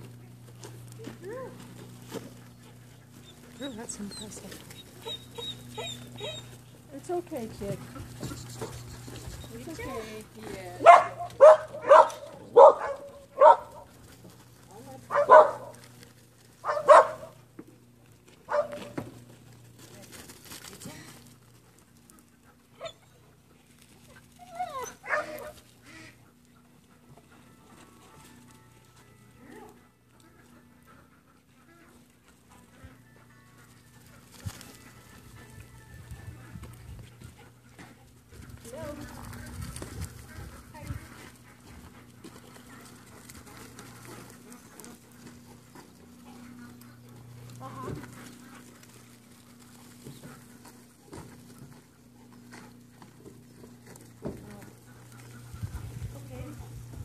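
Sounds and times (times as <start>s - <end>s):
animal footfalls on dirt: 0.0s - 30.5s, 31.9s - 57.0s
steady low hum: 0.0s - 57.0s
dog yelping and whining: 3.2s - 6.6s, 22.8s - 23.2s, 24.1s - 25.6s.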